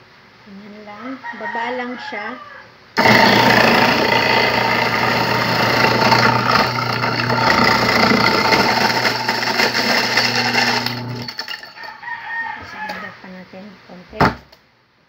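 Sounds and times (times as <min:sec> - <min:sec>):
motor hum: 0:03.0 - 0:11.8
ice crushing and grinding: 0:03.0 - 0:11.9.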